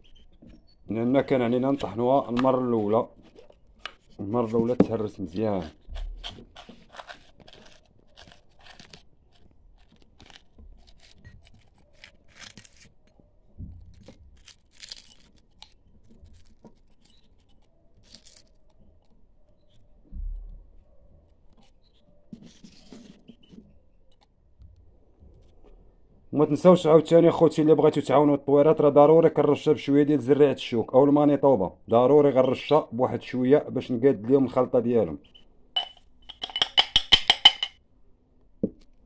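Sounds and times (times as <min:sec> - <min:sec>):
eggshell crackling and crunching: 0:05.4 - 0:13.1, 0:13.9 - 0:19.8.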